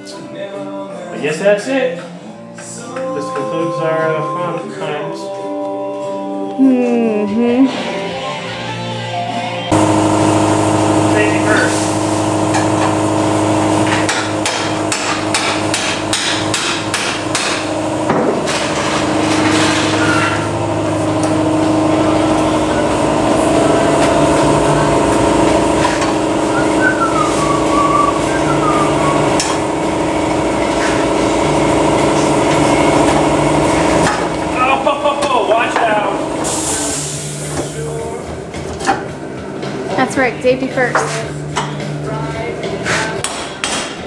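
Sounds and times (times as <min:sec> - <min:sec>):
power tool cutting steel pipe: 0:09.7 - 0:26.8.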